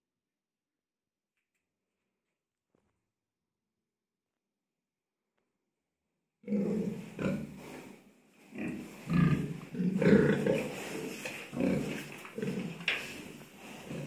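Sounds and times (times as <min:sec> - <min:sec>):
young pigs grunting: 0:06.4 - 0:07.9, 0:08.5 - 0:14.0.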